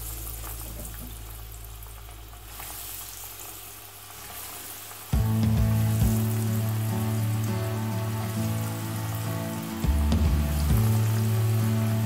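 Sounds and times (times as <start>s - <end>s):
oil sizzling in a pan: 0.0s - 12.0s
loud music: 5.2s - 12.0s.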